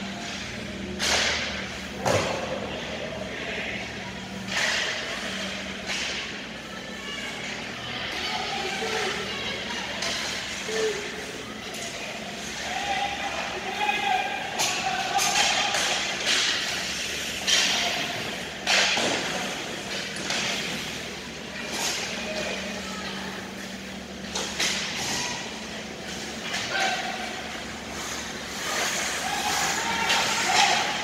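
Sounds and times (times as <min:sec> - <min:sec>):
distant shouts: 0:06.6 - 0:16.3, 0:28.5 - 0:31.0
skates scraping on ice: 0:15.0 - 0:31.0.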